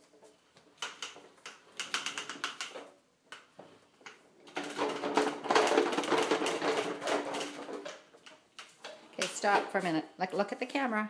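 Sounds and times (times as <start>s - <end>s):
toy wagon rattling on tile: 0.7s - 3.6s, 4.4s - 9.8s.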